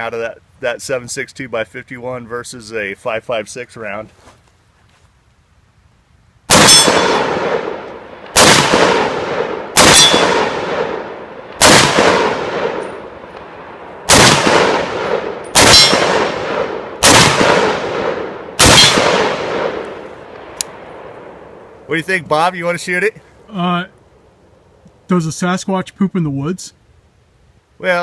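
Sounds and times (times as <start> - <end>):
pistol shots with echo: 6.5 - 13.1, 14.1 - 20.1.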